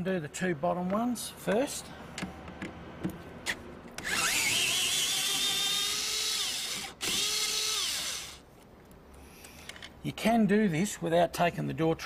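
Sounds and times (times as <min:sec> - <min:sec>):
cordless drill whine: 0:04.0 - 0:08.4
drill clicks: 0:04.0 - 0:08.4.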